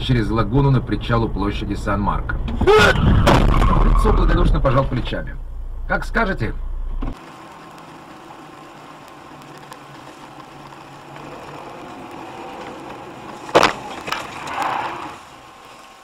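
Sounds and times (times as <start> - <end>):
road and engine noise in car: 0.0 - 2.9, 4.3 - 16.0
rough rumbling noise: 0.0 - 16.0
loud sharp bang: 2.9 - 4.2.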